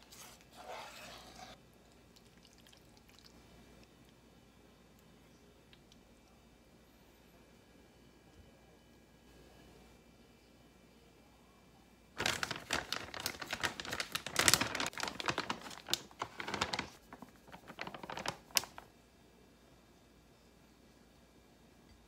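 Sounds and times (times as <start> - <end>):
plastic packet crinkling: 12.2 - 18.9.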